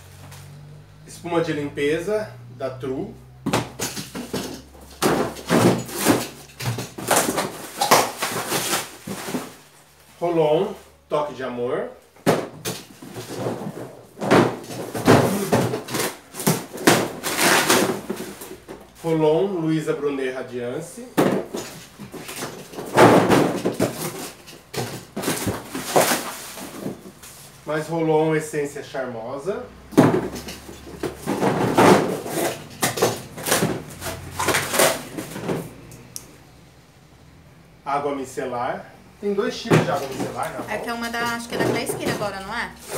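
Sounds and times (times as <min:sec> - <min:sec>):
cardboard boxes scraping and rustling: 0:04.0 - 0:10.0, 0:12.4 - 0:19.1, 0:21.2 - 0:27.6, 0:30.0 - 0:35.8, 0:39.8 - 0:42.9
packaging rustling: 0:04.8 - 0:10.1, 0:21.4 - 0:27.6.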